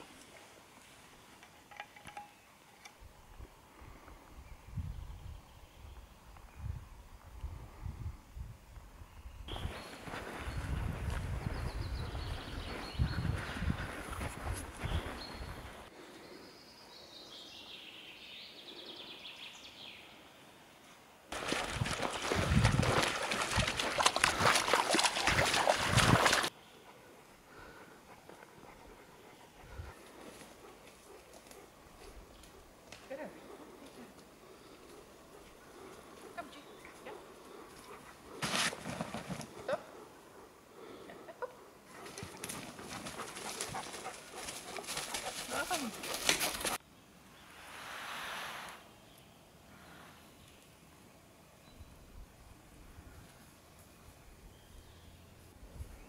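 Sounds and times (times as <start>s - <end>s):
paws rustling dry leaves: 42.0s - 46.8s
songbird singing with trill: 54.2s - 56.0s.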